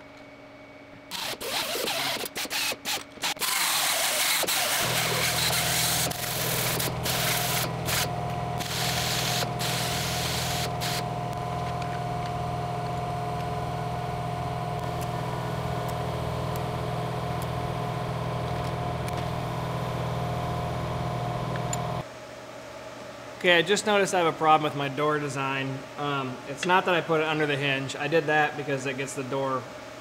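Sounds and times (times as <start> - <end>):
low electrical hum: 0.0 - 30.0
high buzzing tone: 1.1 - 22.0.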